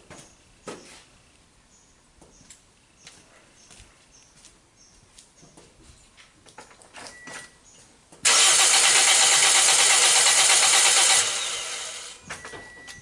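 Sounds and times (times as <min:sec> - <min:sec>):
car engine cranking: 0:08.2 - 0:12.8.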